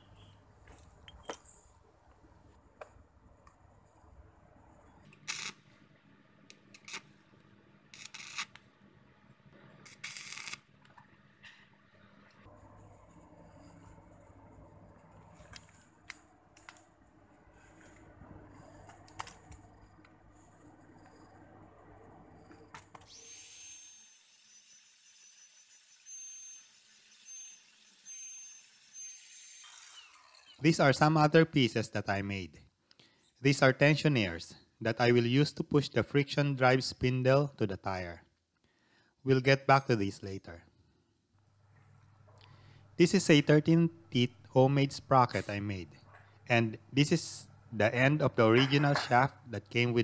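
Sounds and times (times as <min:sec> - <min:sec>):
welding arc crackle and hiss: 0:05.1 - 0:05.7, 0:06.6 - 0:07.2, 0:08.0 - 0:08.6, 0:09.9 - 0:10.7.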